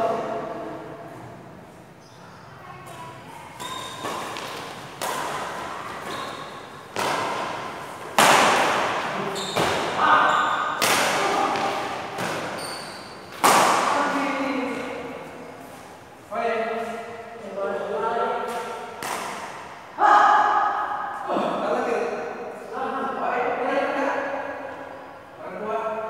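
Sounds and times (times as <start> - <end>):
racket striking shuttlecock: 3.6 - 10.0, 10.6 - 14.2, 18.4 - 19.8.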